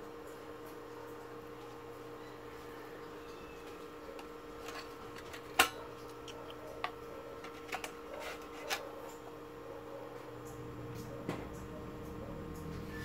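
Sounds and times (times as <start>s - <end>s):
electrical hum: 0.0s - 13.0s.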